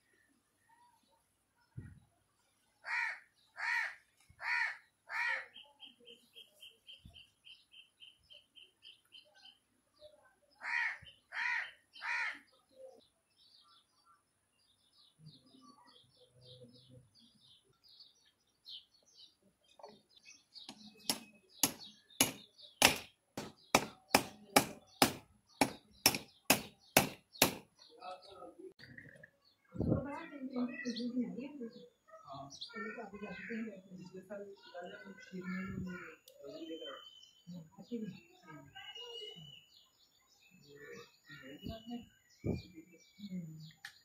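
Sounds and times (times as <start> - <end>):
crow cawing: 2.8 - 5.5, 10.6 - 12.4.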